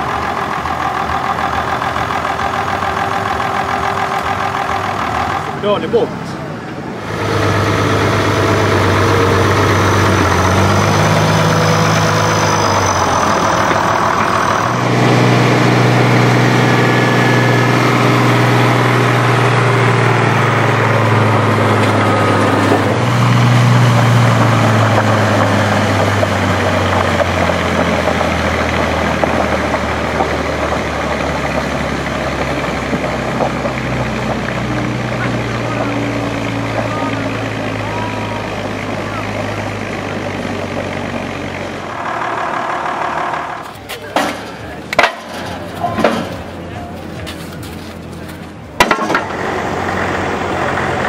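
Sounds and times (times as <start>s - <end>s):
tractor engines running loud: 0.0s - 51.0s.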